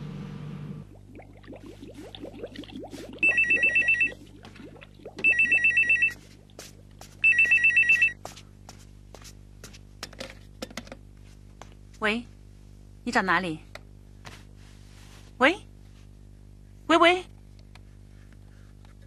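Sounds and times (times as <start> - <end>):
telephone ringing electronic trill: 3.2 - 4.2, 5.2 - 6.2, 7.2 - 8.2.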